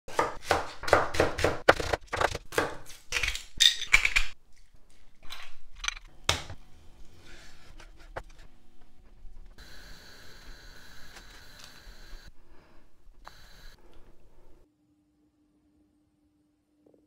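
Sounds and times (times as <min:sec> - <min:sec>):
knife chopping on cutting board: 0:00.1 - 0:02.9.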